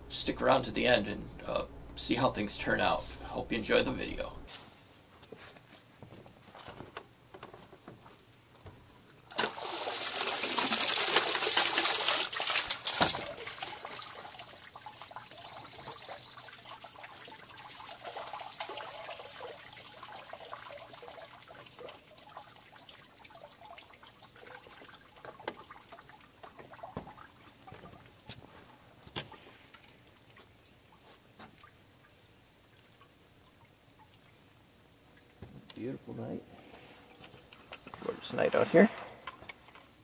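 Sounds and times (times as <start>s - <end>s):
water trickling and dripping: 9.2s - 36.3s
water pouring and splashing: 9.3s - 34.5s.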